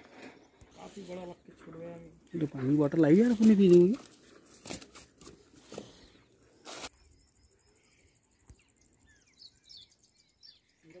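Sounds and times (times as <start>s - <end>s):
faint birds chirping: 0.0s - 11.0s
plastic sack rustling and crinkling: 2.4s - 6.9s.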